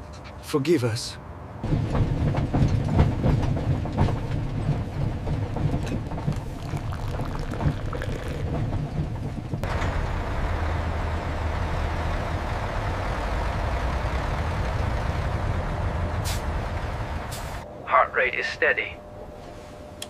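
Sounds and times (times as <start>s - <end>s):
railway carriage rumbling: 0.0s - 19.9s
rocket engines roaring: 3.5s - 19.0s.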